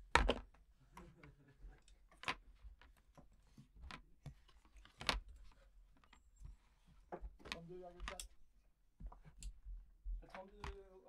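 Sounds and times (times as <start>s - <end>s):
faint handling noise: 0.1s - 11.0s
small objects clicking on table: 7.3s - 8.4s.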